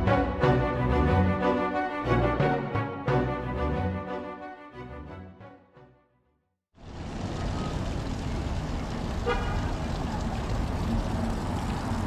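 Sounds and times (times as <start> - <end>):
street traffic rumble: 6.8 - 12.0
car horn toot: 9.2 - 9.6.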